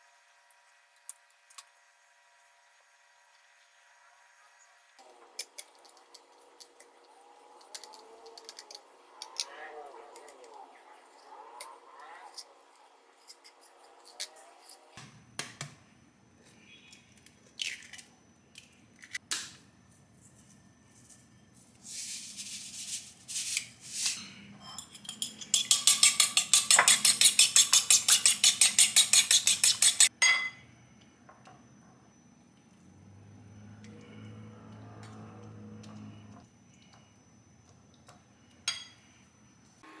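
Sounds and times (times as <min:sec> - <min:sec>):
fork beating egg in ceramic bowl: 0:24.6 - 0:30.1.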